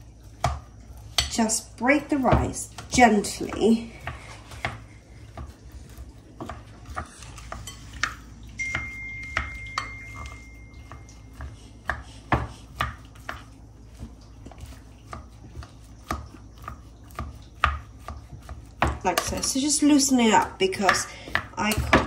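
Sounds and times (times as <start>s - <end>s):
thin ringing tone of glass bowl: 8.5s - 11.4s
plastic paddle tapping glass bowl: 8.6s - 11.1s.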